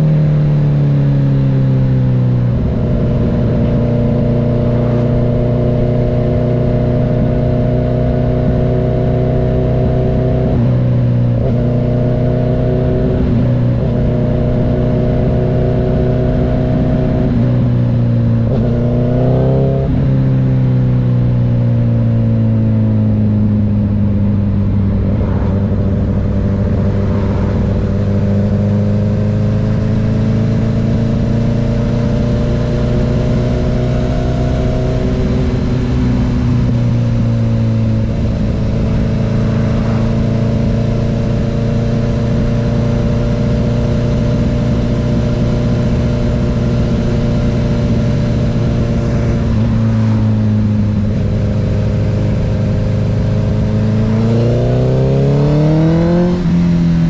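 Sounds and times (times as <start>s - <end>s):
motorcycle engine cruising: 0.0s - 57.0s.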